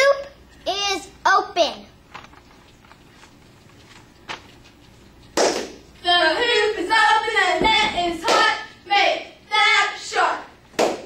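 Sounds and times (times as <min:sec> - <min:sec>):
sharp hand clap: 0:05.4 - 0:05.8, 0:08.2 - 0:08.6, 0:10.8 - 0:11.0.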